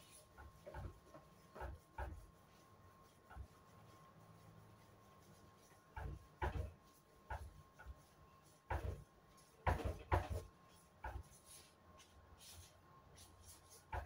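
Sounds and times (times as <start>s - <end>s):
dough pressed on wooden board: 0.0s - 4.3s, 5.4s - 11.5s, 13.6s - 14.0s.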